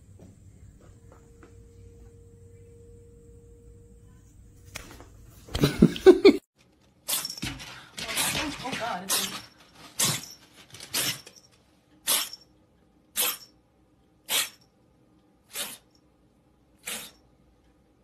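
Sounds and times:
kitten sneezing: 12.0 - 12.4, 13.2 - 13.4, 14.3 - 14.6, 15.5 - 15.9, 16.8 - 17.2.

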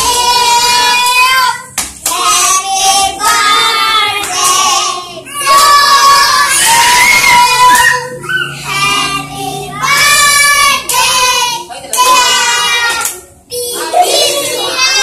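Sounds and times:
children singing together: 0.0 - 15.0
children clapping: 1.0 - 2.3, 3.2 - 3.6, 4.2 - 4.5, 12.8 - 13.2.

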